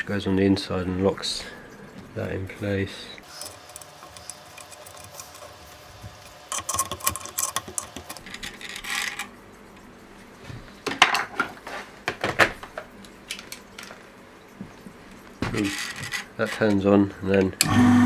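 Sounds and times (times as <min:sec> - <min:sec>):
small metal parts clinking: 0:06.5 - 0:09.4.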